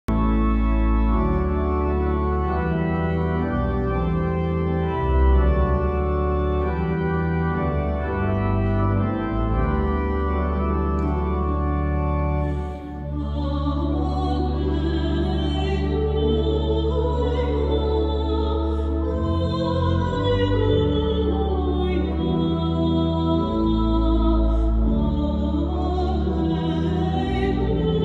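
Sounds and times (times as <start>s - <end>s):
church organ chords: 0.1s - 28.0s
person singing: 13.0s - 28.0s.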